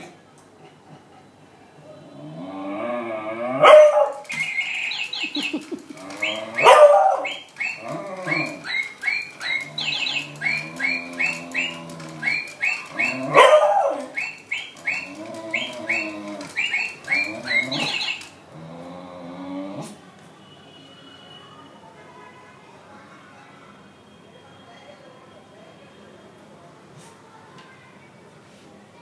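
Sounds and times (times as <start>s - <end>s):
electronic toy parrot chirping: 4.2s - 18.4s
dog howling: 6.0s - 8.8s, 9.4s - 14.2s, 17.1s - 18.0s.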